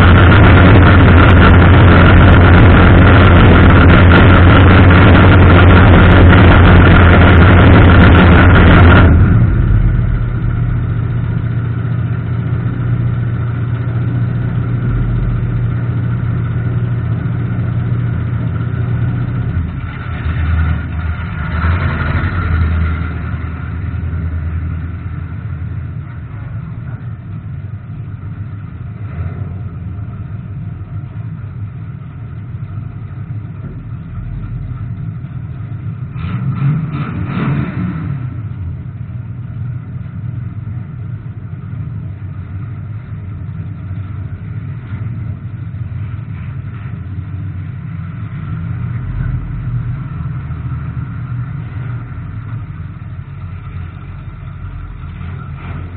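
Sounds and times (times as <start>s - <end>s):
race car engine: 0.0s - 55.9s.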